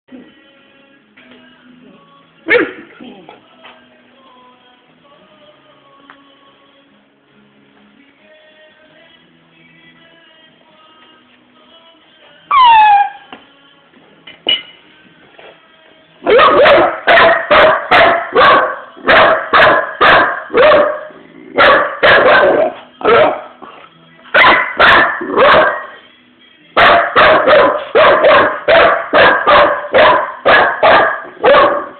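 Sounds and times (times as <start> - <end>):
puppy barking: 2.5 - 2.9, 16.2 - 23.6, 24.3 - 26.0, 26.8 - 31.9.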